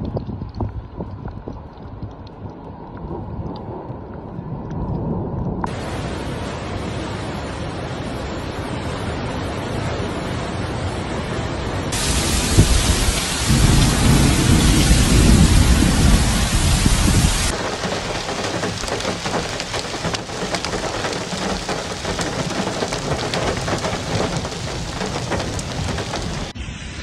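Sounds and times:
small crackles of flood front: 0.0s - 5.9s, 11.9s - 26.6s
floodwater rushing: 5.7s - 26.6s.

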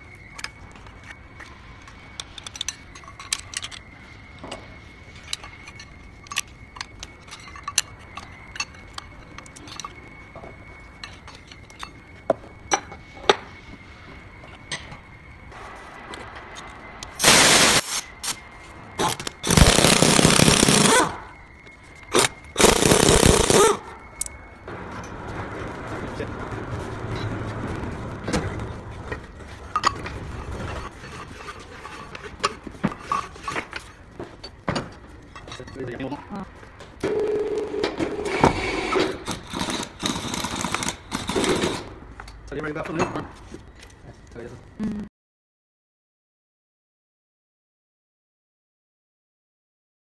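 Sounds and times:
steel gears clinking and knocking: 0.2s - 12.1s
pneumatic impact wrench hammering: 17.2s - 18.4s, 19.0s - 21.2s, 22.1s - 23.8s, 38.4s - 41.9s.

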